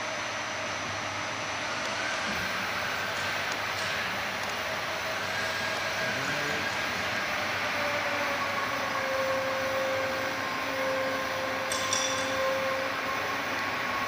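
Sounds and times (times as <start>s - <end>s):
roll-bending machine humming: 0.0s - 14.0s.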